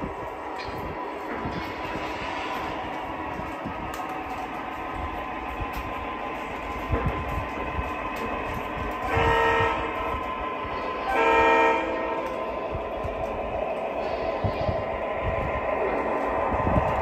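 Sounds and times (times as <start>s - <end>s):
model train rumbling on track: 0.0s - 17.0s
electronic horn blasts: 9.1s - 10.0s, 11.1s - 12.3s.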